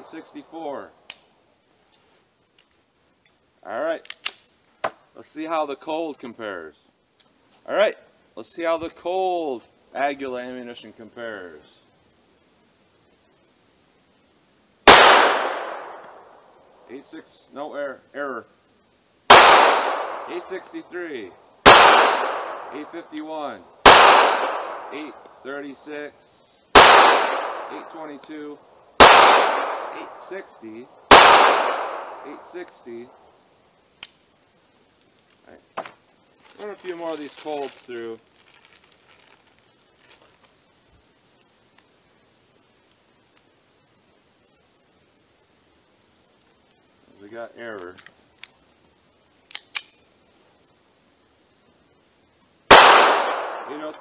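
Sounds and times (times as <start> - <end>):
pistol shots with long echo: 14.9 - 16.4, 19.3 - 20.5, 21.6 - 22.9, 23.8 - 25.2, 26.7 - 28.0, 29.0 - 30.2, 31.1 - 32.5, 52.7 - 54.0
handgun shot: 23.9 - 24.9, 26.8 - 27.7, 29.0 - 29.9, 31.1 - 32.2, 52.7 - 54.0.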